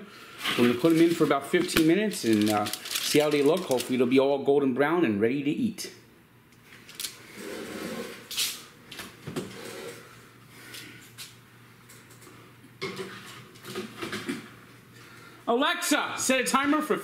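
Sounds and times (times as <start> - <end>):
foil rustling: 0.5 - 4.1.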